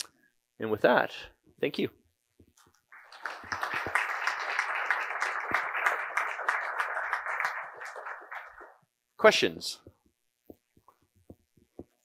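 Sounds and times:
audience applauding: 2.9s - 8.8s.

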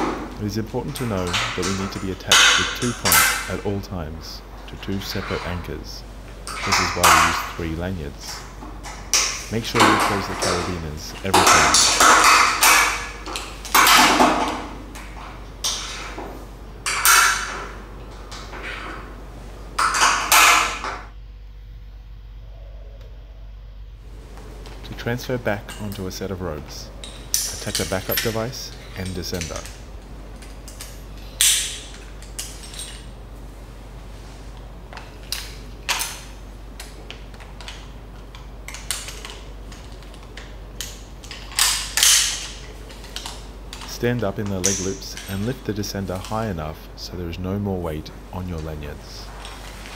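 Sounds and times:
metal climbing hardware clicking: 0.0s - 3.8s, 19.8s - 21.0s, 27.0s - 33.1s, 34.9s - 46.4s
metal carabiners clinking: 0.0s - 21.1s, 24.6s - 33.2s, 34.5s - 47.2s
metal hardware rattling: 0.0s - 21.1s, 25.1s - 33.2s, 34.9s - 46.6s.

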